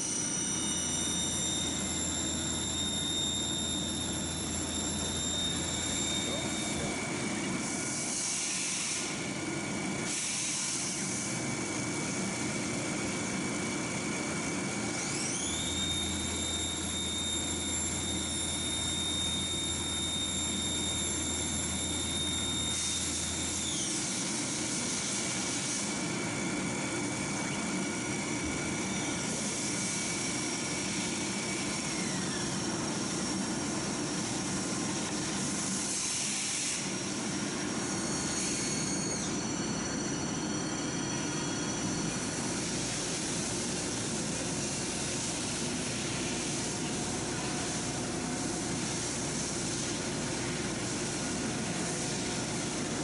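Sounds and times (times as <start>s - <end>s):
lathe spindle whining: 0.0s - 8.0s
shop machinery hiss: 7.9s - 9.2s, 10.0s - 11.3s, 35.2s - 39.4s, 41.8s - 53.0s.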